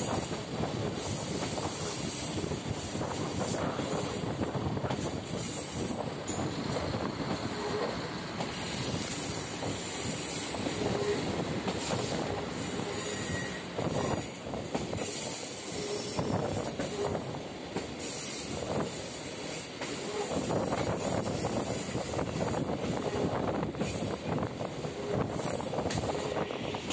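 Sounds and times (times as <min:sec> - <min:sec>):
train rolling rumble: 0:00.0 - 0:26.9
wheel squeal: 0:12.6 - 0:14.2.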